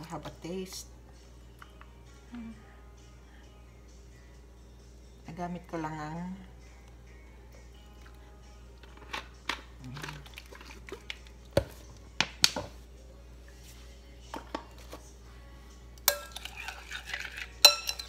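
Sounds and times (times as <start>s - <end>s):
hands stirring food in glass bowl: 8.8s - 12.4s, 16.0s - 18.0s.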